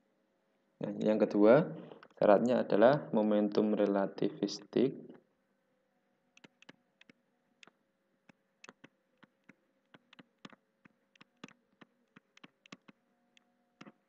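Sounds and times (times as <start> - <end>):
stylus tapping on tablet: 6.4 - 13.0.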